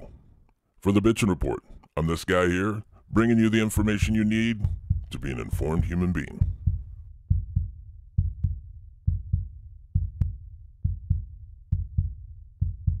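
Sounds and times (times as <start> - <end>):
heartbeat thumps: 3.1 - 13.0.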